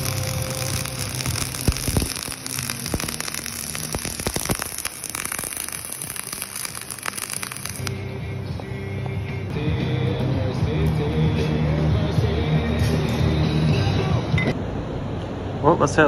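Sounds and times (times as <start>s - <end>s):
welding arc crackling: 0.0s - 8.2s.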